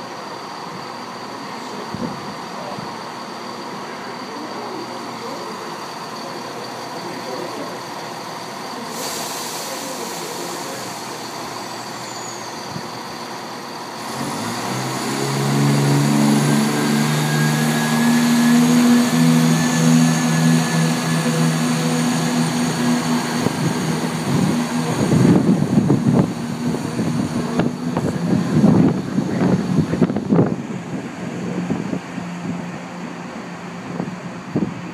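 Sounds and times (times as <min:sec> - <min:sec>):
diesel train engines under power: 0:00.0 - 0:34.9.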